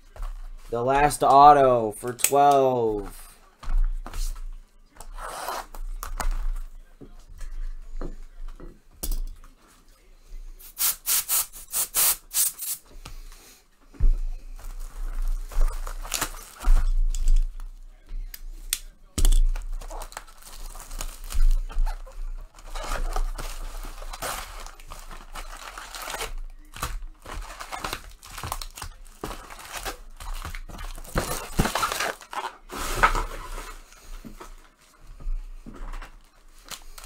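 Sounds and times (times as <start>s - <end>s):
wrappers tearing and rustling: 14.6s - 17.8s, 18.4s - 33.9s, 36.2s - 37.0s.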